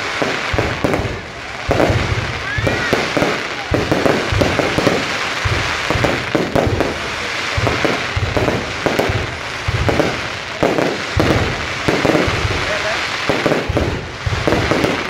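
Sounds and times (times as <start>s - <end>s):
fireworks bangs and crackling: 0.0s - 15.0s.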